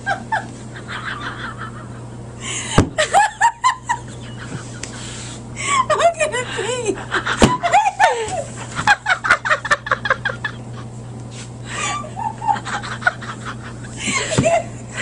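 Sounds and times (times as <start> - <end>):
hysterical cackling laughter: 0.0 - 2.2, 3.0 - 5.1, 6.8 - 11.0, 11.7 - 15.0.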